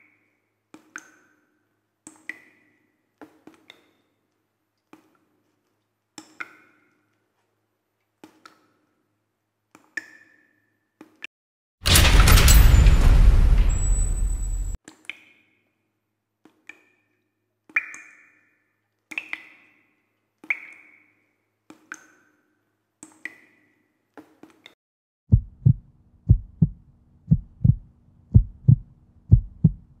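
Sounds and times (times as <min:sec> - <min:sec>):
heartbeat double thumps: 0:25.3 - 0:30.0.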